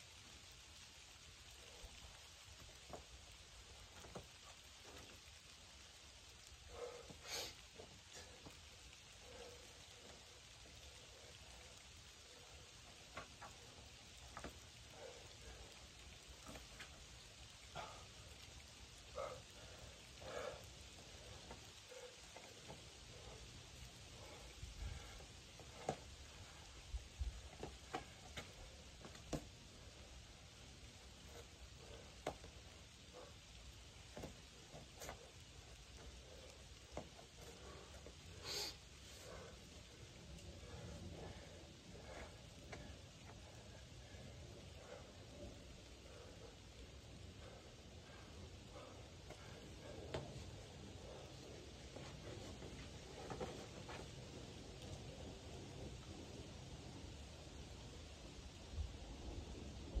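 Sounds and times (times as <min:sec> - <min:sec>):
faint steady hiss: 0:00.0 - 1:00.0
hands and shoes tapping on rock: 0:02.8 - 0:03.1, 0:03.8 - 0:05.2, 0:12.9 - 0:14.6, 0:25.6 - 0:26.1, 0:27.5 - 0:29.5, 0:32.0 - 0:32.6, 0:34.1 - 0:35.2, 0:36.9 - 0:38.0.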